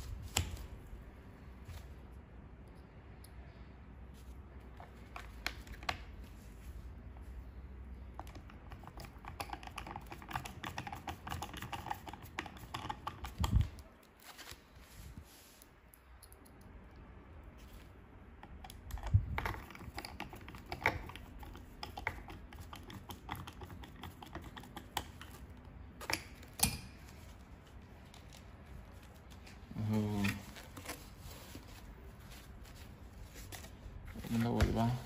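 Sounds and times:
screwdriver clicking and scraping: 8.2s - 13.7s, 18.4s - 26.9s.

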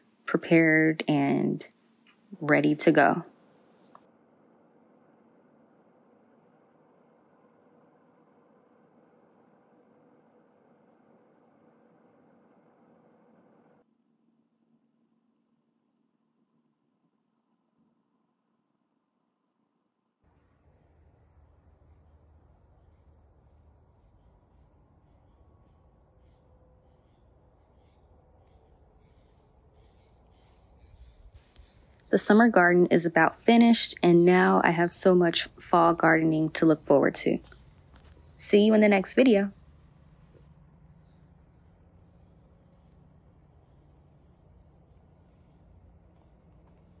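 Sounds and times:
insects trilling: 20.3s - 33.3s, 37.4s - 47.0s.

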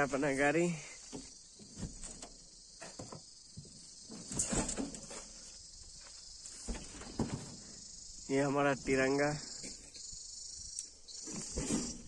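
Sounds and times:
insects droning: 0.0s - 12.0s
thuds and scrapes: 1.0s - 7.8s, 11.1s - 12.0s.

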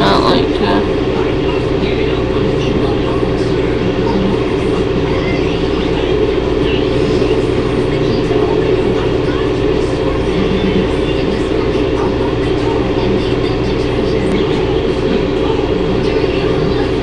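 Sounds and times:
droning hum and hiss: 0.0s - 17.0s.

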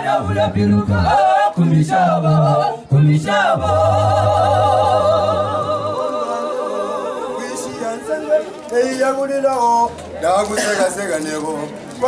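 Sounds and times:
choir singing a cappella: 0.0s - 9.0s.

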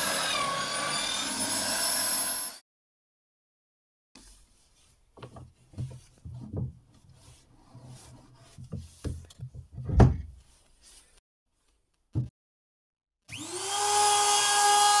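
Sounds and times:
wood knocking on wood: 5.2s - 6.9s, 8.6s - 10.4s
heavy wooden thump: 9.8s - 10.3s.

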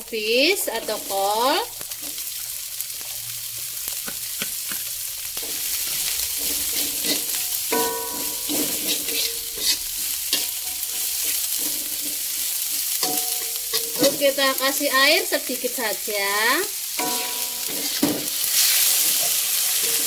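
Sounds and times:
cabbage sizzling in a wok: 0.0s - 20.0s
metal spatula scraping a pan: 4.6s - 14.4s, 16.9s - 20.0s.

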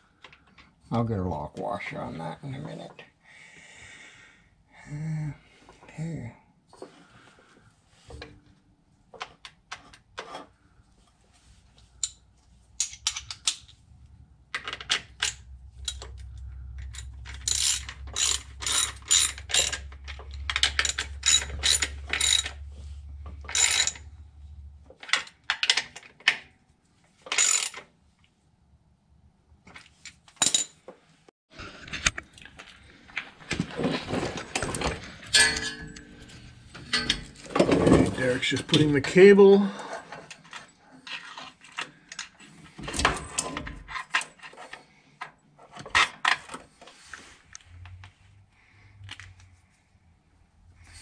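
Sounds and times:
clattering: 33.6s - 38.8s.

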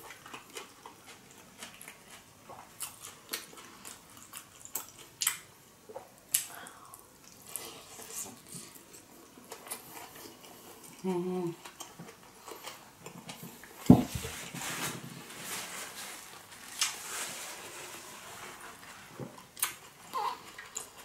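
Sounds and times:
close-miked chewing: 0.0s - 13.8s, 19.3s - 21.0s.

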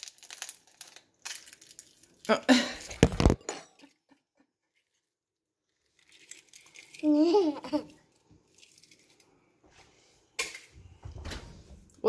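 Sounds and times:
rustling and handling noise: 0.0s - 3.4s
child's wordless vocal sound: 7.0s - 7.9s.

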